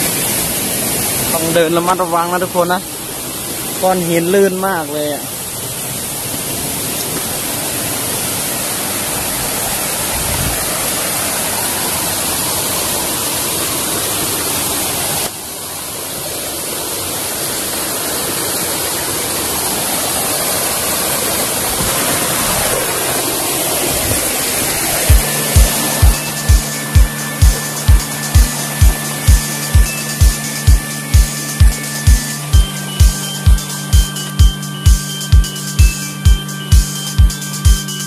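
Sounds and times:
stream and small waterfall rushing: 0:00.0 - 0:37.9.

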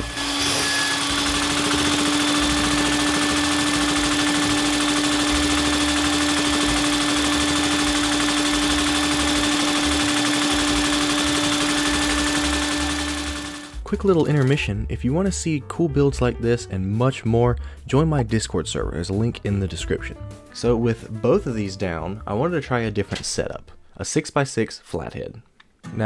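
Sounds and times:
toy vacuum engine running: 0:00.0 - 0:13.8.

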